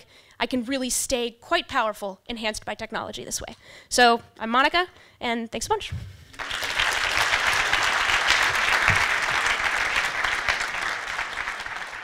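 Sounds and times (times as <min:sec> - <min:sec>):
audience applauding: 0:06.4 - 0:12.0.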